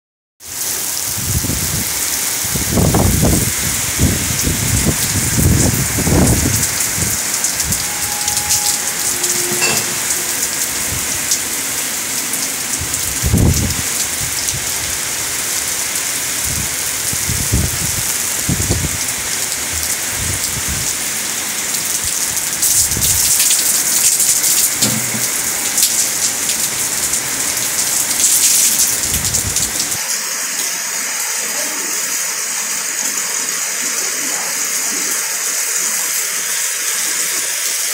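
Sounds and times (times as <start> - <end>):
rain falling on concrete: 0.4 - 37.9
low rumbles: 3.9 - 14.8.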